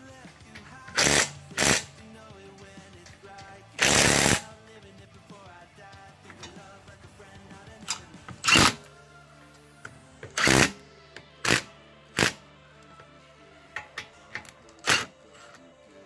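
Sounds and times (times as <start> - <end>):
background music: 0.0 - 16.0
impact wrench hammering: 0.5 - 2.0, 2.6 - 4.5, 7.8 - 8.8, 10.2 - 10.8, 13.8 - 15.1.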